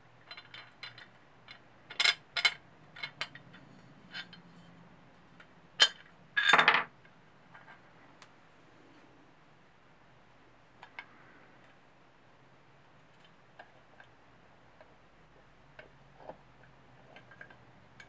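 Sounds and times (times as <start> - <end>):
metal clattering on workbench: 5.8 - 6.9.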